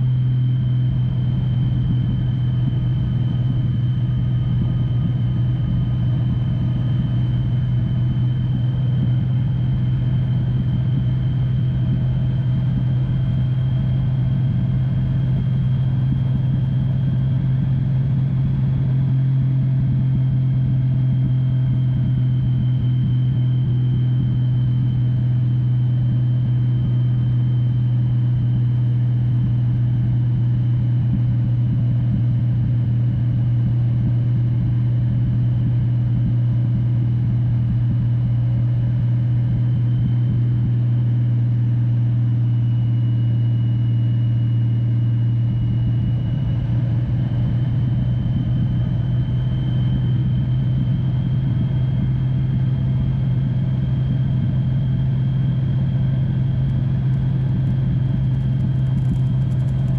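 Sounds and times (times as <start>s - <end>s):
motorcycle engine rumble: 44.6s - 59.9s.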